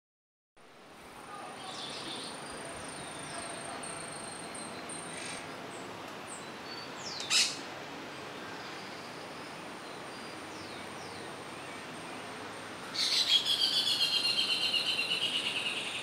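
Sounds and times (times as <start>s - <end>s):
soft steady hiss: 0.6s - 16.0s
birds chirping and calling: 1.6s - 7.7s, 12.9s - 16.0s
downward sweeping bird call: 6.7s - 7.6s, 12.9s - 16.0s.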